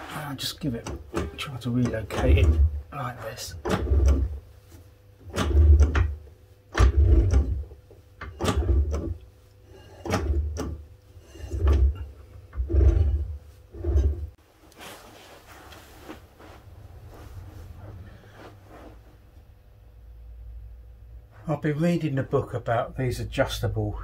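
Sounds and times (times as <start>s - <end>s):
brake drum rumbling and knocking: 0.8s - 2.8s.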